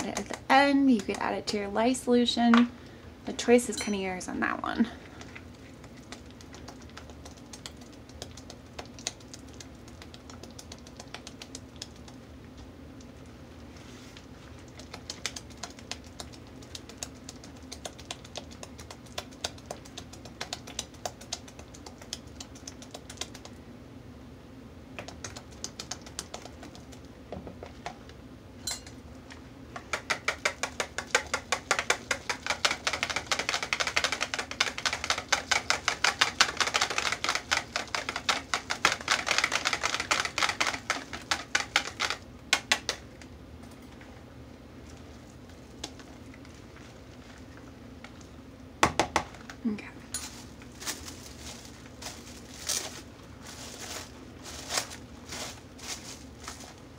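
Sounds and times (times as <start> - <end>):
whisk rattling in plastic bowl: 29.8 - 43.0.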